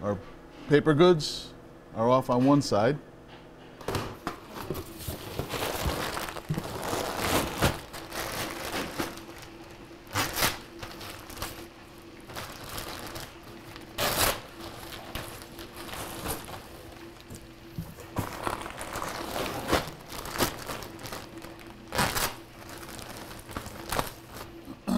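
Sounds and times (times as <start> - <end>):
faint hum: 0.0 - 24.9
cardboard boxes rustling: 4.4 - 9.6, 13.8 - 24.6
plastic packaging crinkling: 4.5 - 24.7.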